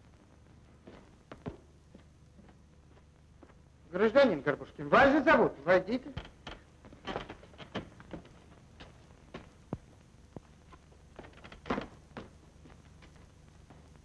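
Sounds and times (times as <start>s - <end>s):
film soundtrack hiss: 0.0s - 14.0s
footsteps on floor: 0.1s - 3.6s, 6.1s - 14.0s.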